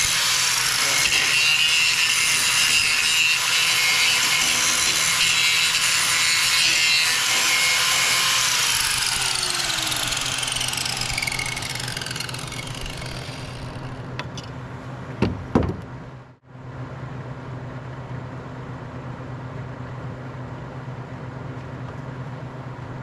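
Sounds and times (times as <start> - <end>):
angle grinder spinning down: 0.0 - 14.1
engine hum: 8.7 - 23.0.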